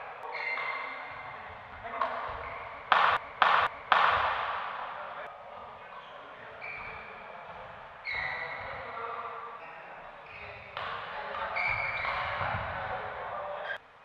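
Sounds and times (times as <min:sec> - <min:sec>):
hall noise with voices: 0:00.0 - 0:14.0
shoes squeaking on court: 0:00.2 - 0:01.3, 0:02.0 - 0:03.5, 0:06.0 - 0:12.8.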